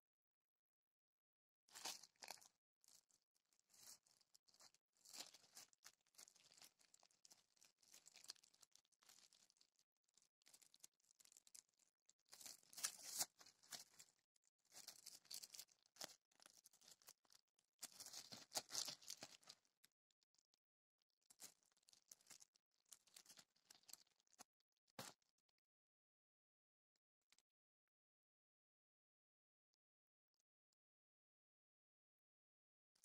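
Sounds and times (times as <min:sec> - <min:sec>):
plastic wrapping crinkling: 0:01.7 - 0:03.1, 0:03.7 - 0:09.6, 0:12.3 - 0:14.1, 0:14.7 - 0:19.6
sharp crackle: 0:01.7 - 0:19.9.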